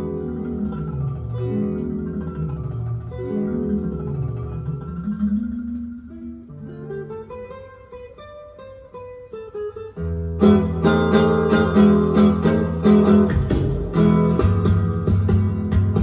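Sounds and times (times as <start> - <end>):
guitar music over loudspeakers: 0.0 - 16.0.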